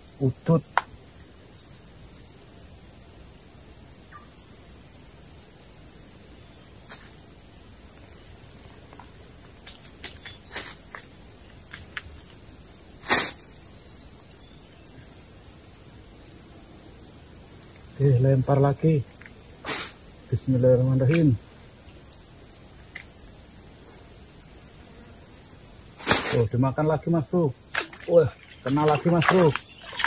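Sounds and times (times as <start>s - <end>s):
crickets droning: 0.0s - 30.0s
short snap: 13.1s - 13.4s, 21.1s - 21.3s, 26.0s - 26.4s.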